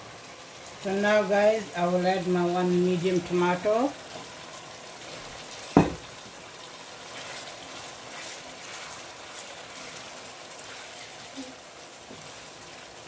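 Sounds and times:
curry simmering in a pan: 0.0s - 13.0s
wooden spoon stirring: 5.0s - 13.0s.

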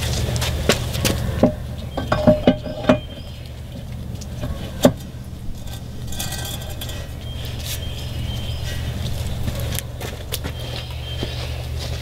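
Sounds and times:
steady low hum: 0.0s - 12.0s
metal clinks and knocks: 1.4s - 3.4s, 4.4s - 7.2s.

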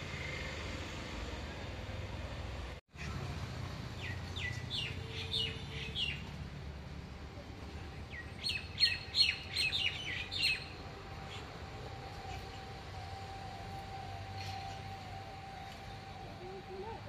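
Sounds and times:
bird chirping: 4.0s - 6.3s, 8.1s - 17.0s.

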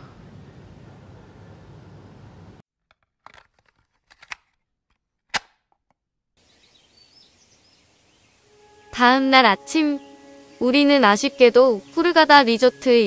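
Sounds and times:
birds chirping: 6.4s - 13.0s.

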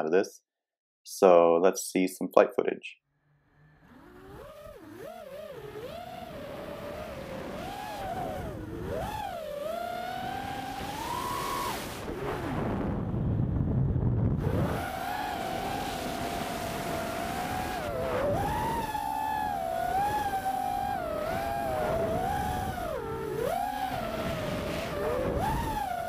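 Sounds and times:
drone motors whining: 3.2s - 26.0s
rush of air and low rumble: 12.0s - 14.6s.

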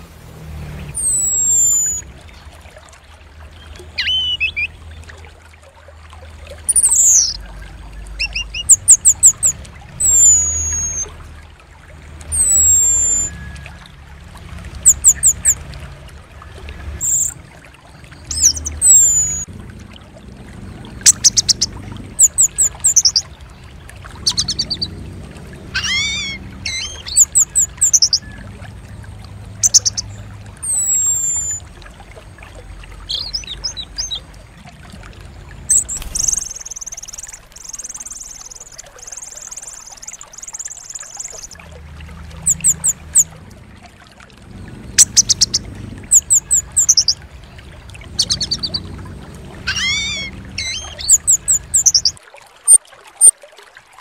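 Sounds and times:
songbirds chirping and trilling: 0.0s - 2.7s, 3.3s - 5.4s, 6.2s - 13.9s, 14.7s - 53.3s
buzzy rasping bird chatter: 18.3s - 19.4s, 21.1s - 23.2s, 24.2s - 24.8s, 25.8s - 28.2s, 29.6s - 30.0s, 48.2s - 48.8s, 49.7s - 52.1s.

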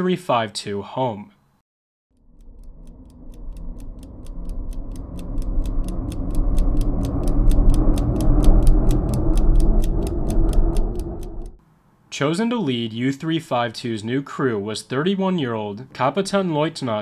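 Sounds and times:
clock-like ticking: 2.1s - 11.6s
low rumbling drone: 2.1s - 11.6s.

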